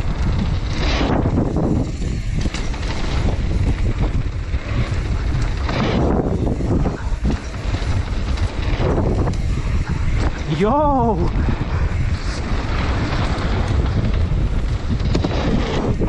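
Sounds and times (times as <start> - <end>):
bike knocking: 0.0 - 10.9
bike rumbling and rattling: 0.0 - 16.0
wind buffeting microphone: 0.0 - 16.0.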